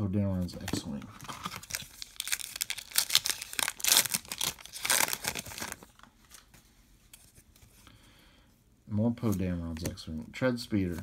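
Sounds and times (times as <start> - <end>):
foil wrapper tearing and crinkling: 1.4 - 5.9.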